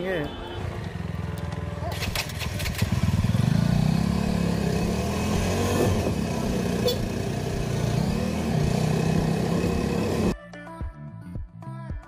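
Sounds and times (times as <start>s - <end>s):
motorcycle engine revving: 0.7s - 10.3s.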